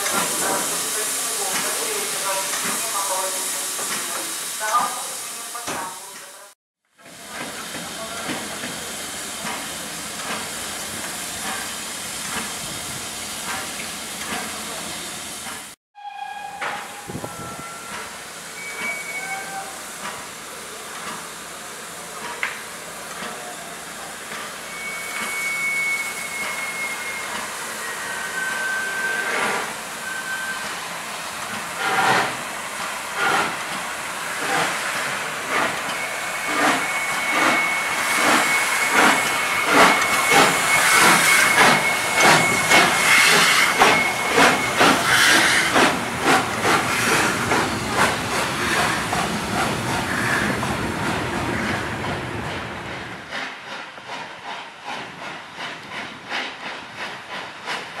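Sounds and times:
steam hissing from cylinders: 0:00.0 - 0:06.5, 0:17.1 - 0:51.8
steam locomotive exhaust chuffs: 0:30.6 - 0:58.0.

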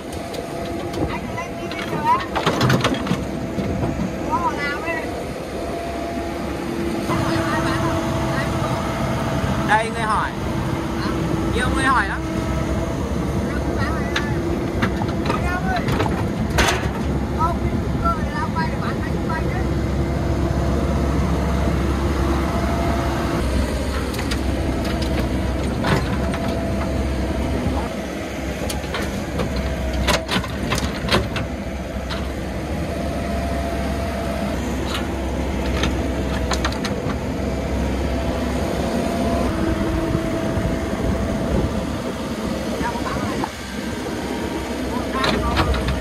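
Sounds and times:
excavator diesel engine whining: 0:00.0 - 0:46.0
bucket clanking on truck bed: 0:14.2 - 0:17.1.

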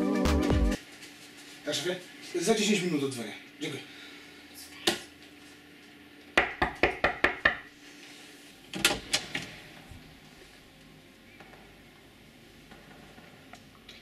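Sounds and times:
knocking on wooden door: 0:06.4 - 0:07.6.

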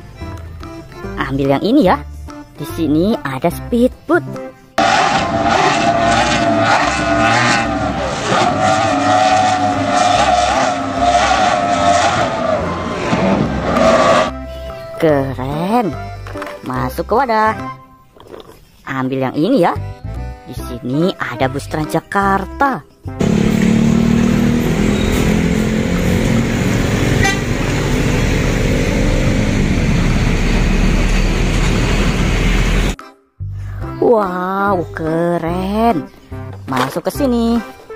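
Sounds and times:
city traffic: 0:04.6 - 0:15.0, 0:23.1 - 0:33.0
powerboat engines whining: 0:04.8 - 0:14.5, 0:23.2 - 0:33.0.

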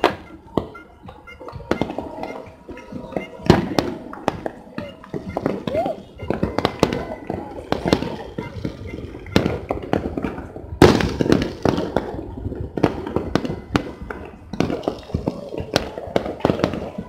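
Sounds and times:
fireworks bangs and pops: 0:00.0 - 0:17.0.

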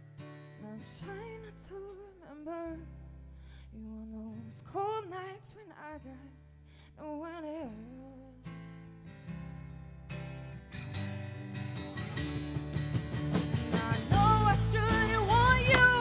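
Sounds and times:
strummed acoustic guitar: 0:00.0 - 0:02.1, 0:08.4 - 0:16.0
woman singing: 0:00.6 - 0:03.0, 0:03.7 - 0:08.5, 0:13.7 - 0:16.0
live rock band: 0:11.8 - 0:16.0.

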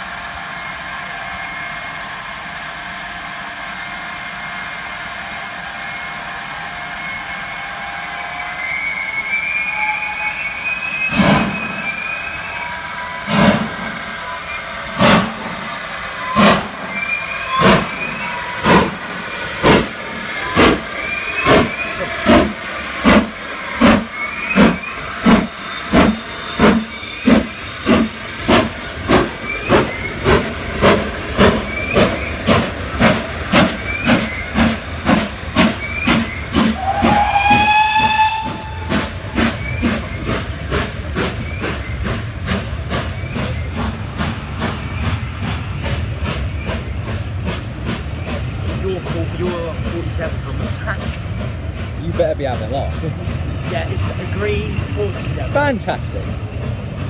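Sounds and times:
steam hissing: 0:00.0 - 0:57.0
steam locomotive chuffing: 0:00.0 - 0:57.0
steam whistle: 0:04.6 - 0:19.0, 0:20.4 - 0:40.4.

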